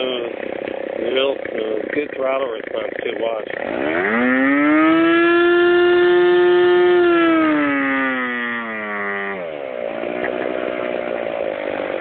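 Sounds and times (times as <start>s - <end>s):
model airplane engine running: 0.0s - 12.0s.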